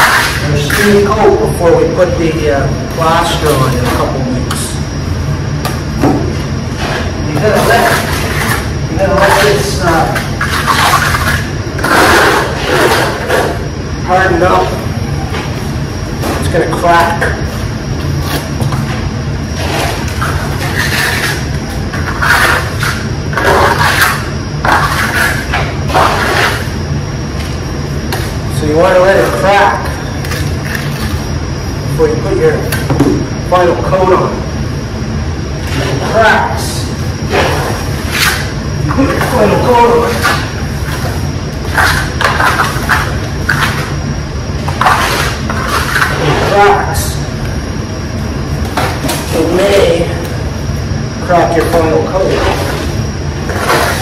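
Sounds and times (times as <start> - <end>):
trowel scraping plaster on a wall: 6.8 - 13.6, 19.6 - 26.7, 44.7 - 46.6, 52.3 - 54.0
trowel scraping wet plaster: 44.7 - 46.5.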